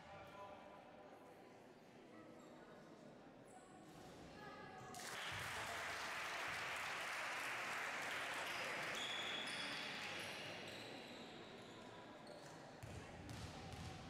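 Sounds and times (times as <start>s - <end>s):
spectators clapping: 5.0s - 10.2s.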